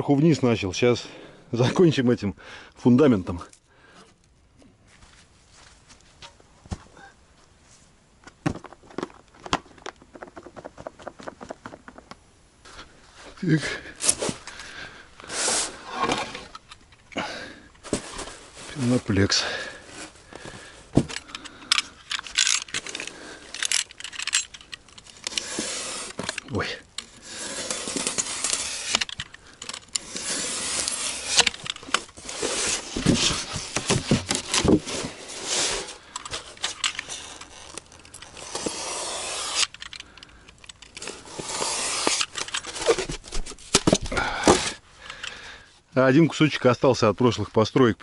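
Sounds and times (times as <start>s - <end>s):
sharp clicks and knocks: 8.2s - 12.2s
foam boards rubbing and scraping: 8.4s - 12.1s, 13.6s - 16.5s, 17.8s - 19.0s, 25.2s - 39.8s, 40.9s - 44.8s.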